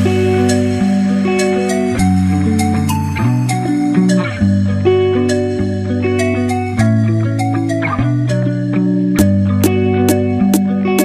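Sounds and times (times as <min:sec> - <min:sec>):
instrumental background music: 0:00.0 - 0:11.0
sharp beat hits: 0:10.1 - 0:10.6.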